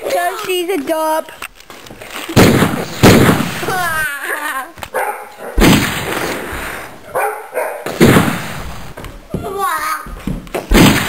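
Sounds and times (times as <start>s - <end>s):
dog barking: 4.9s - 5.6s, 7.1s - 7.9s.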